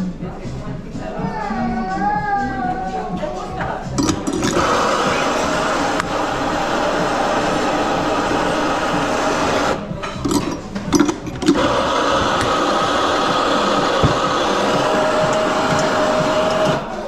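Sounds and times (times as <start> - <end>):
portafilter metal clacks: 4.0 - 4.8, 10.0 - 17.0
espresso machine whirring: 4.0 - 17.0.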